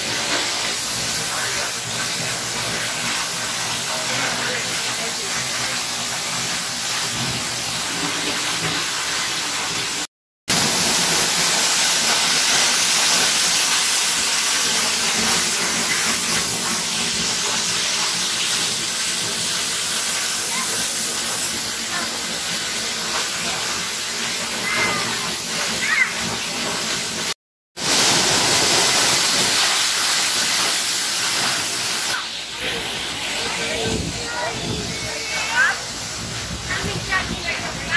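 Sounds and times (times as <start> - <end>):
waterfall pouring: 0.0 - 37.9.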